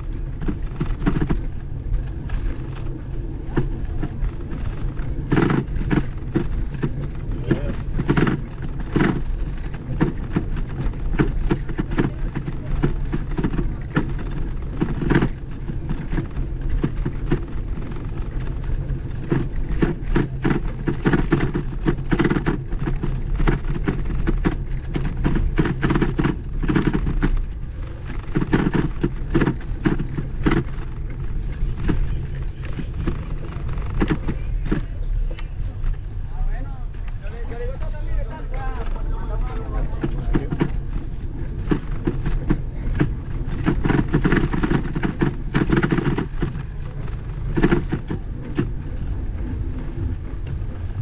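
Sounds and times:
bicycle frame and basket rattling: 0.0 - 51.0
low rolling rumble: 0.0 - 51.0.

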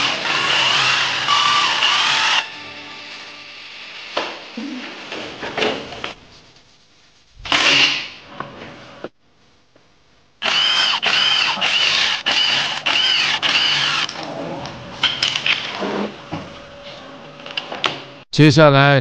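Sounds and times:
impact driver bursts: 10.4 - 14.1.

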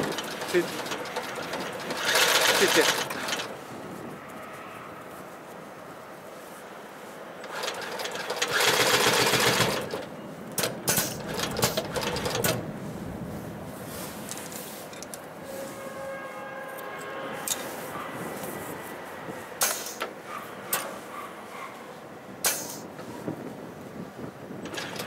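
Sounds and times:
sharp clicks and knocks: 9.4 - 12.6.

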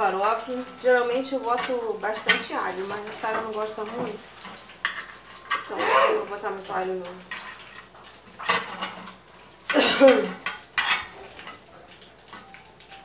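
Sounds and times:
knife and dishes clattering: 9.7 - 11.6.

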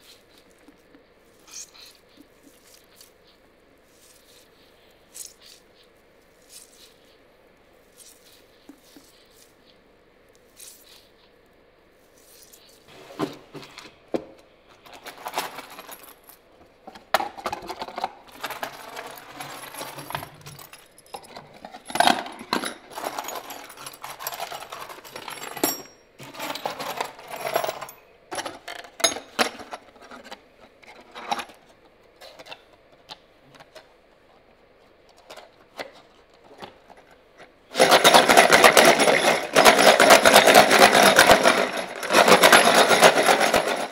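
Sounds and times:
metal hardware clinking: 25.4 - 26.0.

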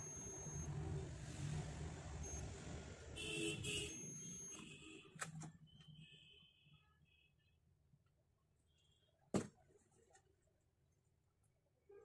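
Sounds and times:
multimeter continuity buzzer beeping: 0.0 - 0.7, 3.8 - 4.7.

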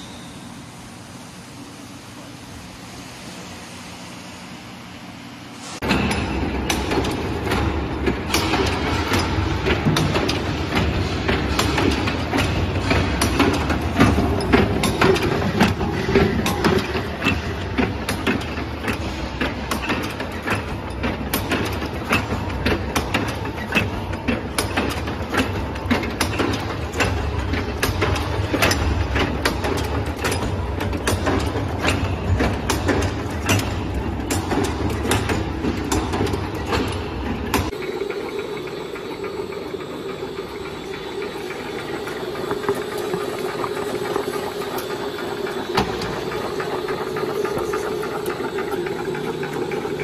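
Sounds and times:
sharp knocks of a press: 5.8 - 37.8.

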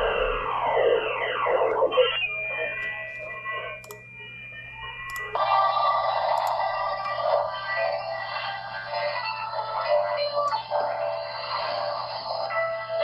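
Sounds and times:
radio hiss: 0.0 - 2.8
radio signal sliding in pitch: 0.0 - 3.8
steady radio tones: 0.0 - 3.8, 5.4 - 13.0
wide am radio signal: 0.0 - 3.8.

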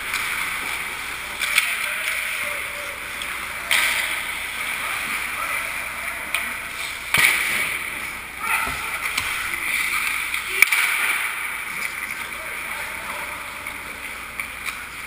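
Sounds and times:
players' voices: 0.0 - 15.0
hockey stick clacks: 0.1 - 2.4, 3.1 - 4.4, 6.3 - 12.2.

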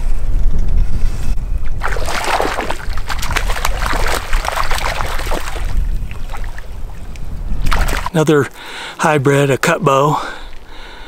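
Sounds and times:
wind rumbling on microphone: 0.0 - 8.2
fish splashing at water surface: 1.8 - 6.8, 7.6 - 8.1.

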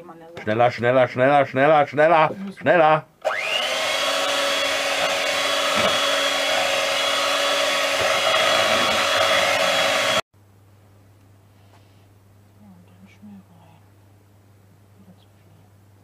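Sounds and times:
electric hand mixer whining: 3.2 - 10.2.

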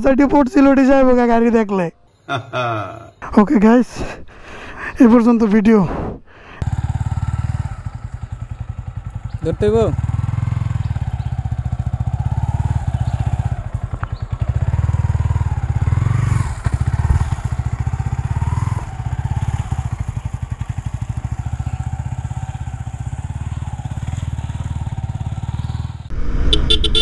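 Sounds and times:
motorcycle engine revving: 6.6 - 27.0.

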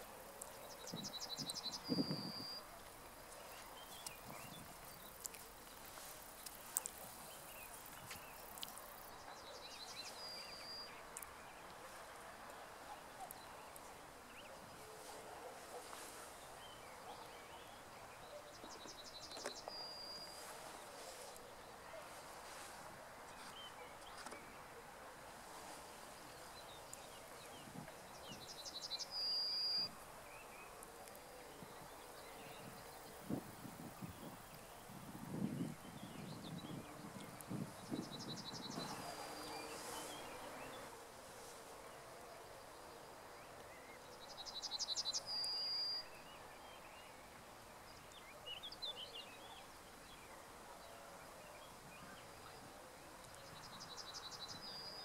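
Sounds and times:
bird singing: 0.0 - 2.7, 6.4 - 11.7, 16.6 - 20.5, 26.4 - 40.9, 43.4 - 47.3
faint outdoor background noise: 0.0 - 55.0.

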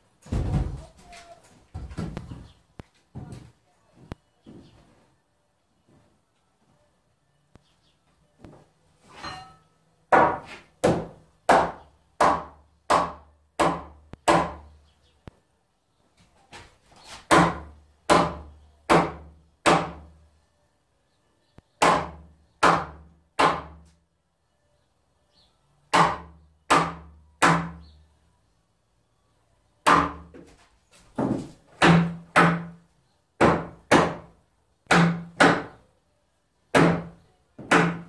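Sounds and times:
hammer driving nails into wood: 10.1 - 14.6, 25.9 - 27.8, 31.2 - 32.8, 33.4 - 34.3, 34.9 - 35.8, 36.7 - 38.0.

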